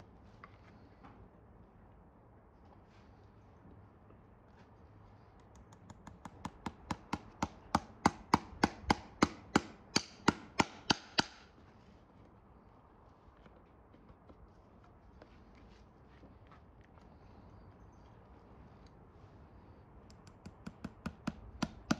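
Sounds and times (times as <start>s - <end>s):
hammer striking horseshoe nail: 6.0s - 11.5s, 20.2s - 21.9s.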